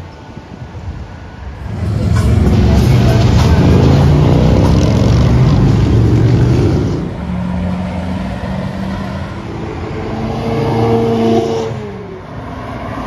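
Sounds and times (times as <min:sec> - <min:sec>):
passing car traffic: 0:00.0 - 0:13.0
car engine: 0:01.4 - 0:13.0
motorcycle engine rumbling past: 0:01.7 - 0:07.2.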